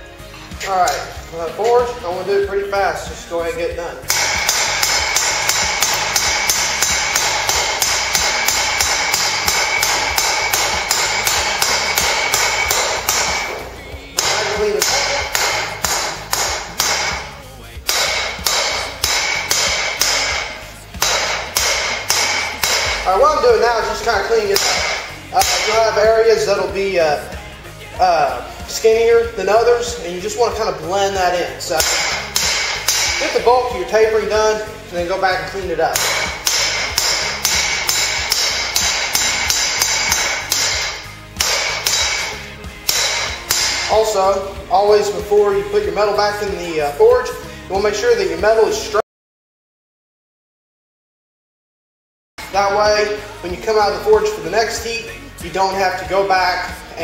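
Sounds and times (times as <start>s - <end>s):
hammer striking steel on anvil: 0.8s - 2.2s, 4.0s - 27.3s, 29.6s - 48.0s.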